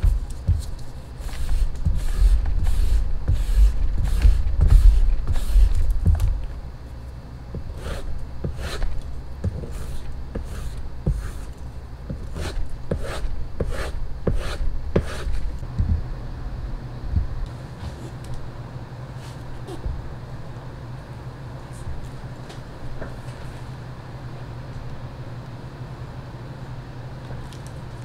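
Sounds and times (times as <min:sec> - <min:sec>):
scrubbing on a strop: 0:00.0 - 0:06.5.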